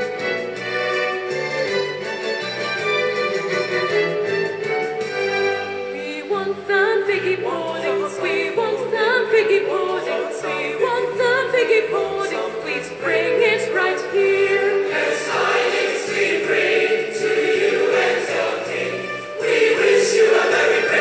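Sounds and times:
choral singing: 6.0s - 21.0s.

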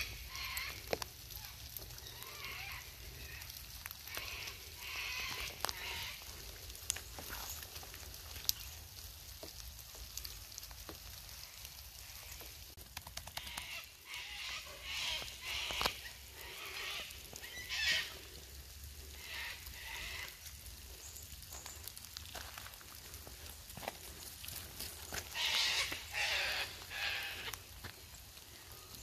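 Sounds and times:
light rain: 0.0s - 29.0s
footsteps crunching on gravel: 4.9s - 8.7s, 21.4s - 28.1s.

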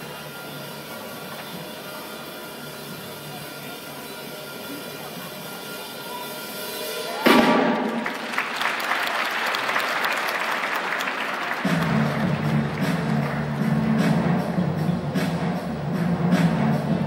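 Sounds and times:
audience applause: 7.1s - 14.1s
low pulsing music beat: 11.7s - 17.0s.

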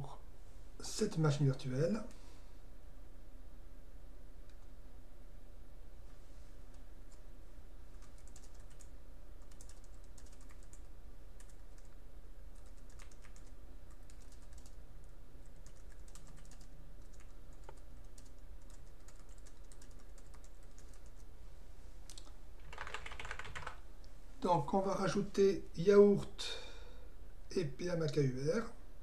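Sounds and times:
low electrical hum: 0.0s - 29.0s
keyboard keys clicking: 8.0s - 11.9s, 12.6s - 14.8s, 15.6s - 21.2s, 22.1s - 23.8s.

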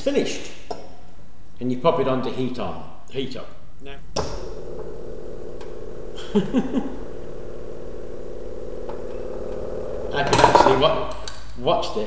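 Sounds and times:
stirling engine buzzing hum: 4.2s - 10.8s.

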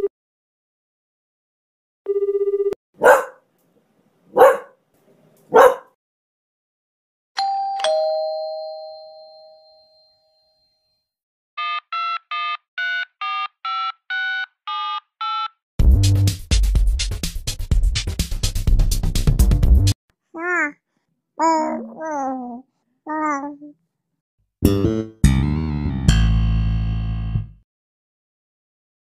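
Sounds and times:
ding-dong doorbell chime: 7.4s - 11.1s.

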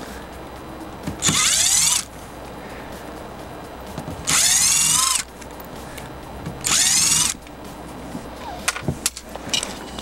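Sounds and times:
cordless drill motor spinning: 1.2s - 2.1s, 4.2s - 5.3s, 6.6s - 7.4s.

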